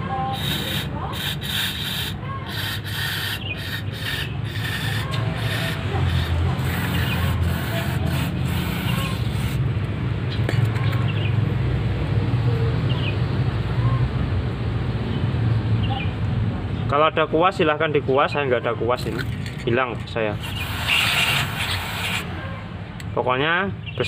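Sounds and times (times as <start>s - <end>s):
aerosol spray hissing bursts: 0.3s - 9.6s, 20.4s - 22.3s.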